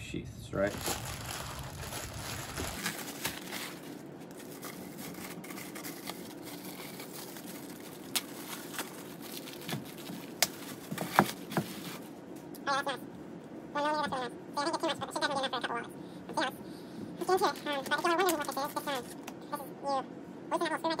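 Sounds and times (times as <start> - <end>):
plastic packaging crinkling: 0.6 - 12.1.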